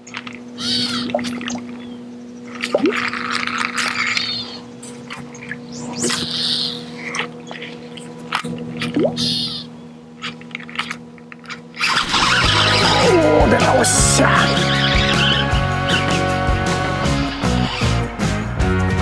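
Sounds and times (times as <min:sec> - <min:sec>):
steady low hum: 0:00.0 - 0:18.6
fishing reel cranking: 0:02.5 - 0:09.6, 0:10.2 - 0:13.3
lure splashing on water: 0:02.5 - 0:09.6.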